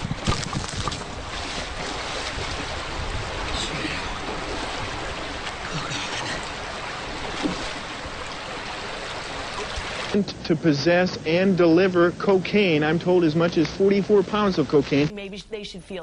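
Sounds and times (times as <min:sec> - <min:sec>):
splashing into water: 0:00.0 - 0:10.2
creek water rushing: 0:00.0 - 0:15.1.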